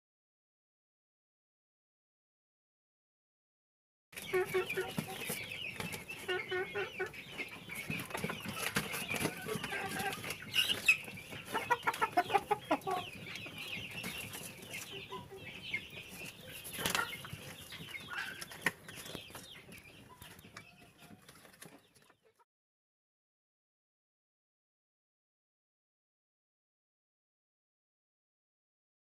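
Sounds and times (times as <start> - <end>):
chickens clucking: 4.2 - 22.4.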